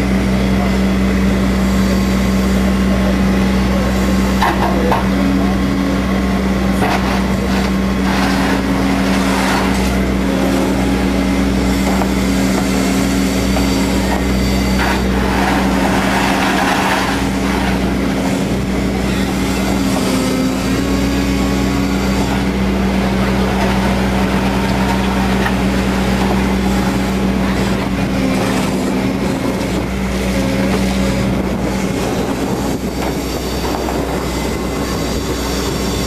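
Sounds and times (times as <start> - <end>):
diesel engine running: 0.0 - 36.0
hydraulics moving bucket: 1.5 - 36.0
bucket scraping gravel: 6.8 - 10.8, 11.7 - 18.5.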